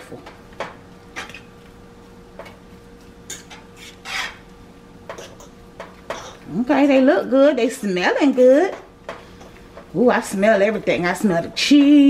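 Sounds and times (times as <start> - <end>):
fork scraping and clinking a pot: 3.3 - 4.4.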